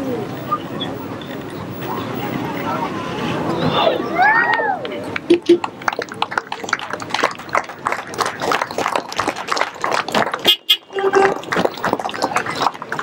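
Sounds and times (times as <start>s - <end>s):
spectators shouting and cheering: 0.0s - 13.0s
car horn toot: 10.5s - 11.6s.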